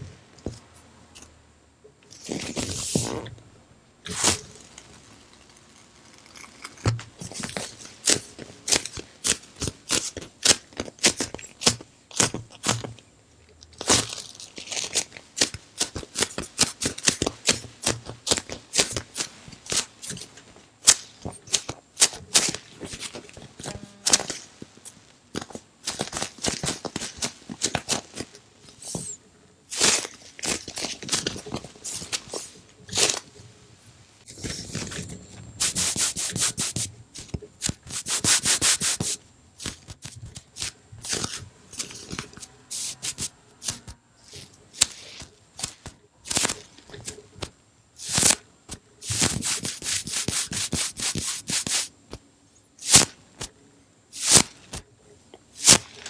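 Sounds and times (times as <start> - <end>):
fingers scratching foam squishy: 35.6 - 46.6, 49.0 - 51.9.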